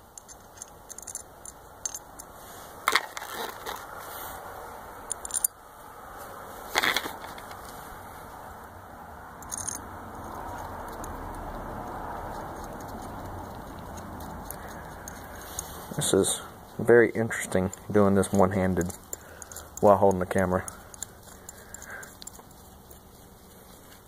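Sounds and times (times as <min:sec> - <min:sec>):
small screws clicking in plastic bowl: 0:00.1 - 0:02.3, 0:09.4 - 0:23.2.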